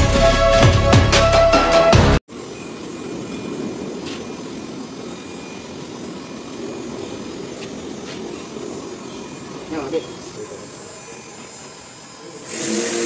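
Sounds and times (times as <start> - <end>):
heat gun fan whirring: 12.2 - 13.0.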